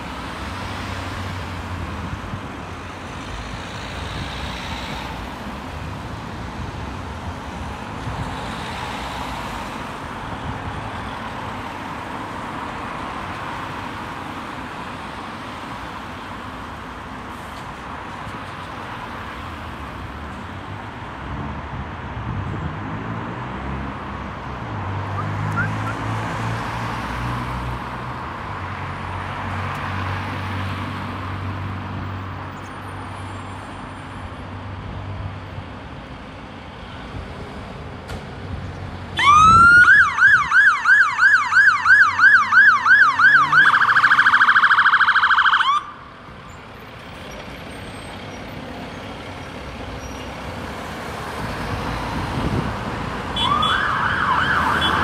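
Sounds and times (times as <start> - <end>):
road traffic: 0.0 - 55.0
fire engine siren wailing: 25.2 - 26.0, 39.2 - 46.1, 53.3 - 55.0.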